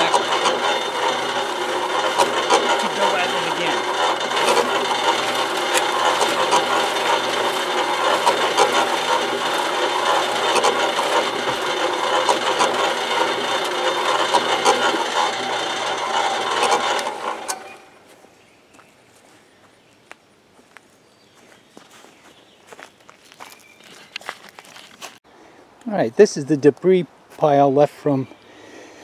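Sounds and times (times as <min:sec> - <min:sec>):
debris rattling in drum: 0:00.0 - 0:17.5
motor hum: 0:00.0 - 0:19.8.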